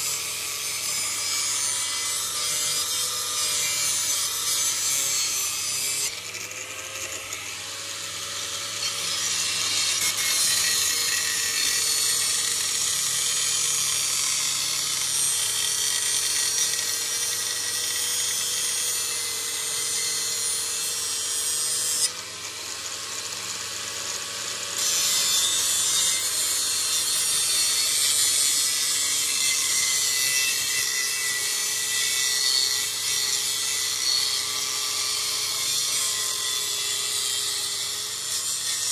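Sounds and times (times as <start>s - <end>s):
knife grinding on wheel: 8.4s - 34.4s
grinder motor hum: 21.7s - 30.1s.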